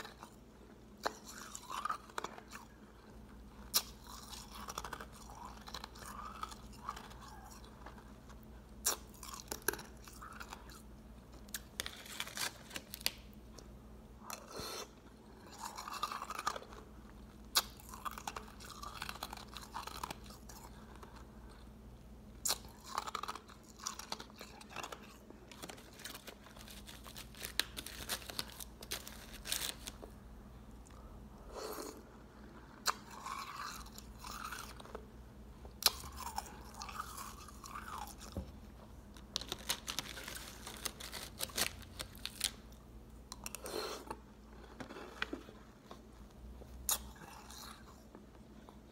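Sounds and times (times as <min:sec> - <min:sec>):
ice crunching while chewed: 0:00.0 - 0:21.7, 0:22.4 - 0:30.0, 0:32.7 - 0:35.1, 0:35.8 - 0:38.4, 0:43.3 - 0:48.9.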